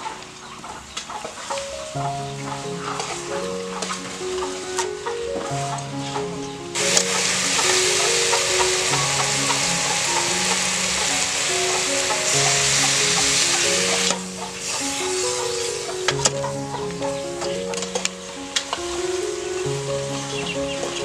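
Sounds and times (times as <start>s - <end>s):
meat sizzling in a pot: 6.8s - 15.9s.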